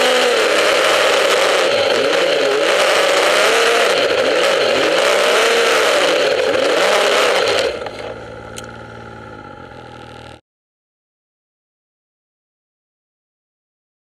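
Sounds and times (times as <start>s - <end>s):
snowmobile engine revving: 0.0s - 10.4s.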